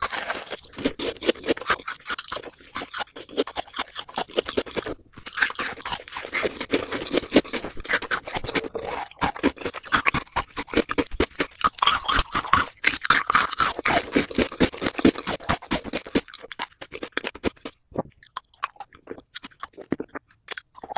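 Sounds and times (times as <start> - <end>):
mouth chewing gummy candy: 0.0 - 20.9.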